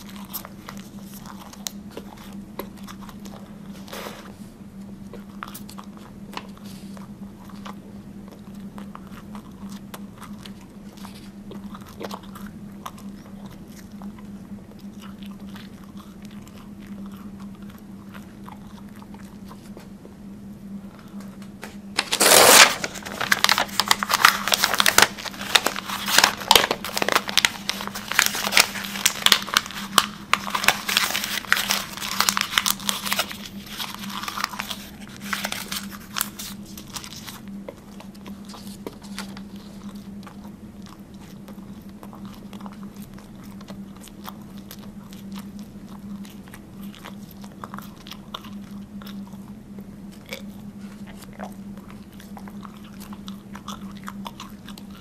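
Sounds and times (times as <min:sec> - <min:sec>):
mouth chewing and crunching: 0:00.0 - 0:20.0, 0:20.8 - 0:55.0
steady low hum: 0:00.0 - 0:55.0
crinkling crackly clicks: 0:21.1 - 0:49.5.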